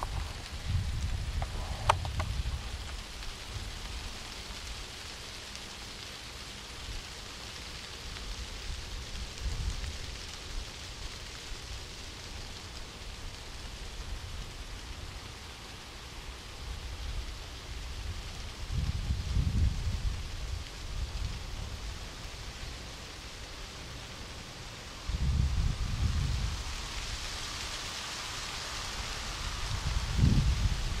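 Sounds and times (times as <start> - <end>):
wind buffeting microphone: 0.0 - 4.0, 16.6 - 22.0, 25.0 - 27.5, 28.8 - 31.0
breeze hiss: 0.0 - 31.0.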